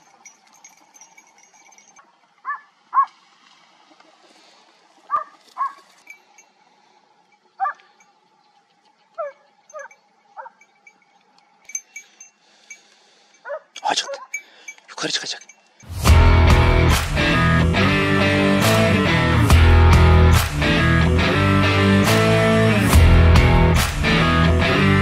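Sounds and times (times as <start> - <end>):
hounds barking: 2.4 - 3.2, 5.1 - 5.9, 7.6 - 7.9, 9.2 - 10.6, 13.4 - 14.4.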